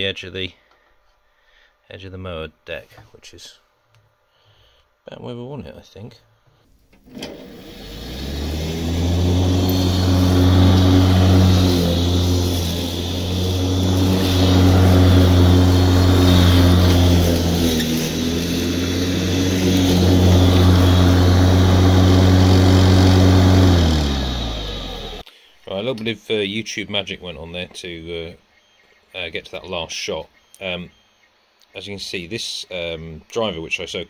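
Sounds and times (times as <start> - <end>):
electric lawnmower cutting grass: 7.0 - 25.2.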